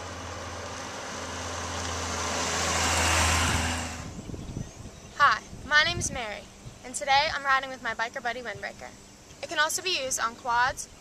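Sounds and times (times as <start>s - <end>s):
motorcycle engine passing: 0.0s - 4.4s.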